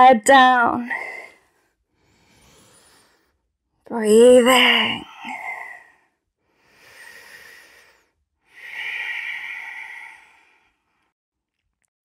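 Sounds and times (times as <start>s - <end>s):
woman breathing deeply: 0.9s - 3.6s, 4.9s - 11.2s.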